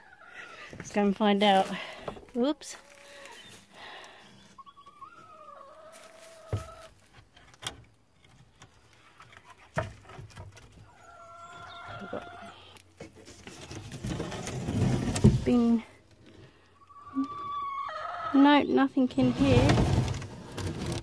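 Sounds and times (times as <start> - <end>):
hens calling: 0.0 - 0.8, 1.5 - 7.0, 10.7 - 12.9, 16.5 - 18.9.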